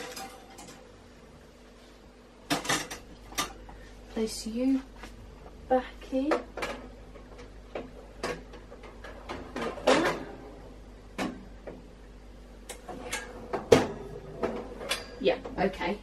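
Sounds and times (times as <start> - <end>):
metal oven rack clicking and scraping: 0.0 - 0.8, 12.7 - 15.2.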